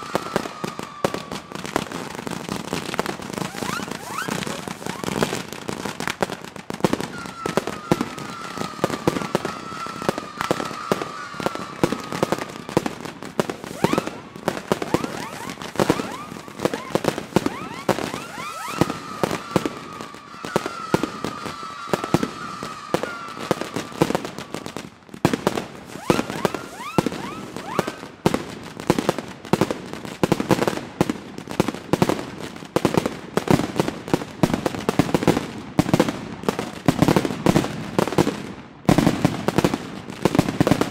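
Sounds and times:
rising firework whistles: 0:00.0 - 0:28.9
fireworks cracks and bangs: 0:00.0 - 0:40.9.

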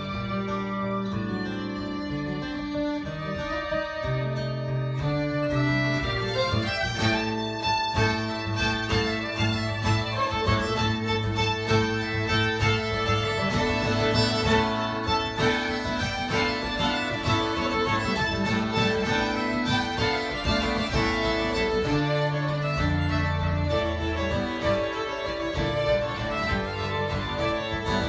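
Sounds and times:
acoustic guitar chords: 0:00.0 - 0:28.0
fiddles playing tune: 0:00.0 - 0:28.0.

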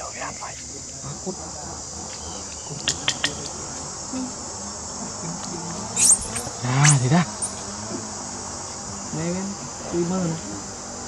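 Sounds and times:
forest insects chorus: 0:00.0 - 0:11.0
high squeal: 0:06.0 - 0:07.6.

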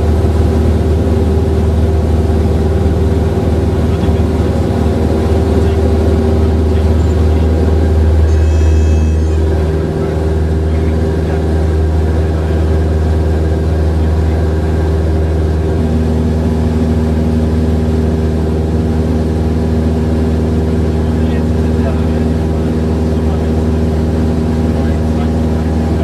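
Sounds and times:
airplane engine drone in cabin: 0:00.0 - 0:26.0
thin high tone: 0:06.8 - 0:10.2.

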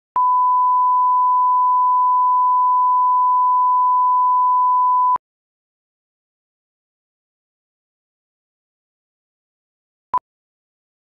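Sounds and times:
steady test tone beep: 0:00.2 - 0:05.2.

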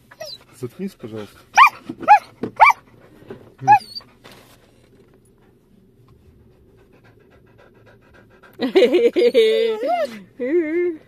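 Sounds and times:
dog barking excitedly: 0:01.5 - 0:02.9.

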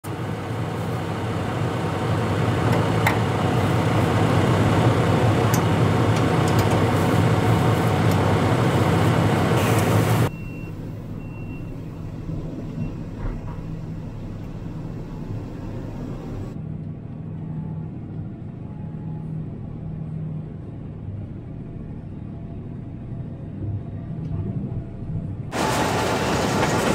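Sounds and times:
tractor diesel engine running: 0:00.0 - 0:16.6, 0:25.5 - 0:26.9
muffled engine hum inside cab: 0:00.0 - 0:26.9.

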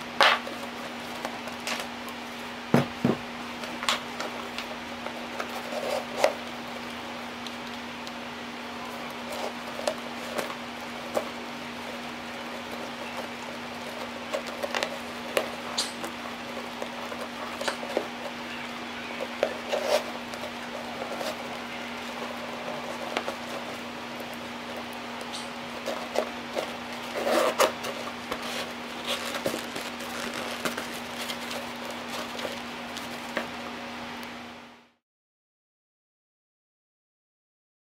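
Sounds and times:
bag handling rustles and taps: 0:25.7 - 0:33.5.

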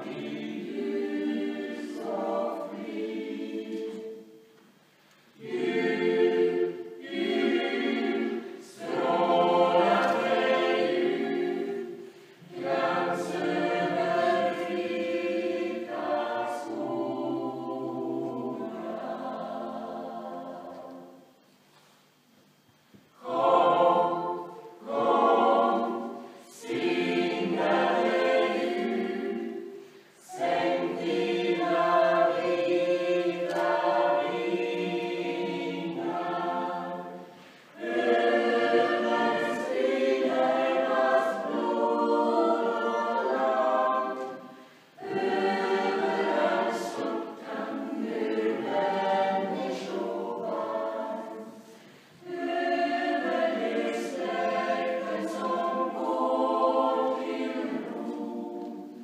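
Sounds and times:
mixed choir singing: 0:00.0 - 0:04.6, 0:05.3 - 0:21.4, 0:23.1 - 0:59.0.

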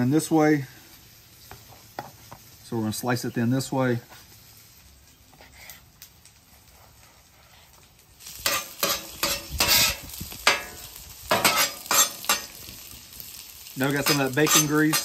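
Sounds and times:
onions sizzling: 0:00.0 - 0:15.0
metal spatula scraping griddle: 0:08.2 - 0:12.8, 0:13.8 - 0:15.0.

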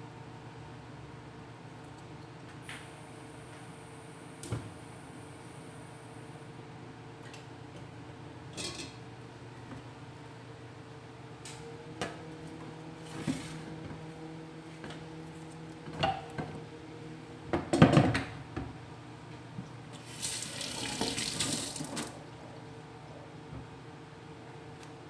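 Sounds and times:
water running from tap: 0:20.0 - 0:22.2.

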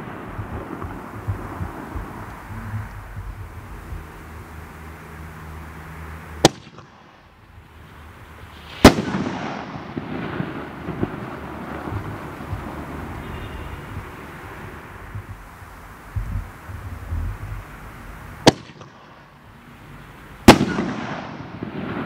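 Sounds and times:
firework crackling and hiss: 0:00.0 - 0:22.0
firework burst bang: 0:06.4 - 0:07.2, 0:08.5 - 0:15.4, 0:18.4 - 0:19.2, 0:20.5 - 0:22.0
firework launch thump: 0:08.5 - 0:13.0.

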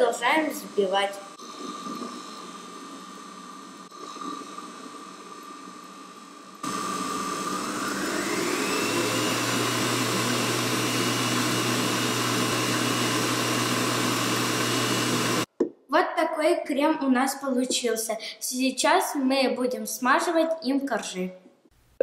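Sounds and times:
stand mixer motor whine: 0:06.6 - 0:15.5.

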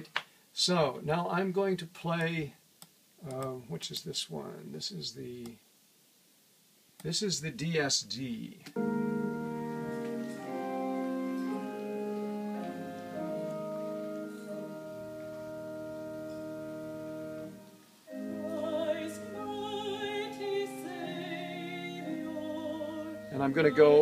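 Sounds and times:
classical music chords: 0:08.7 - 0:24.0
person singing with vibrato: 0:08.8 - 0:24.0.

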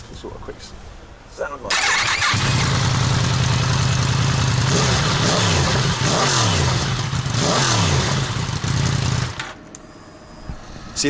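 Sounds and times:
motorcycle engine idling and revving: 0:01.7 - 0:09.6.

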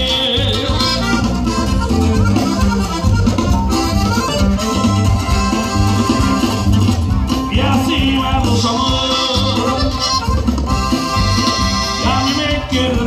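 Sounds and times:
accordion: 0:00.0 - 0:13.0
bass line: 0:00.0 - 0:13.0.

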